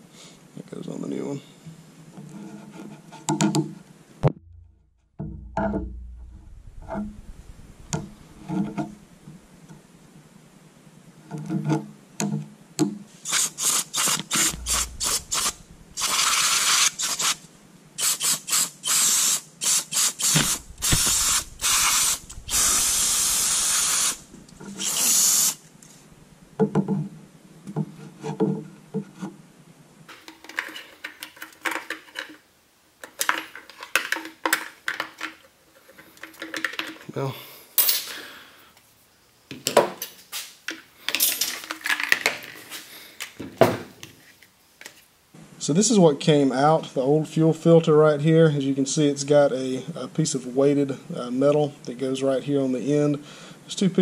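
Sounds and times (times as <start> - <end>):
hissing spray bursts: 13.2 - 17.4, 18.0 - 25.7.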